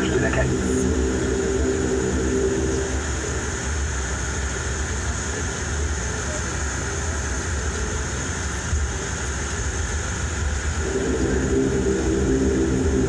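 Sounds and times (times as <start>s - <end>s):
high turbine whine: 0.0s - 13.0s
turboprop engines droning: 0.0s - 13.0s.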